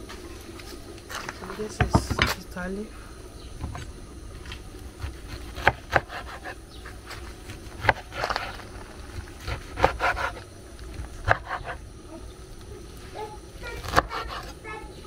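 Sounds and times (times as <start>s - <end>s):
wet leaves rustling and scraping: 0.0s - 3.0s, 3.6s - 11.2s, 12.1s - 15.0s
knife chopping on wooden board: 5.0s - 6.6s, 7.8s - 8.5s, 9.4s - 10.4s, 11.2s - 11.8s.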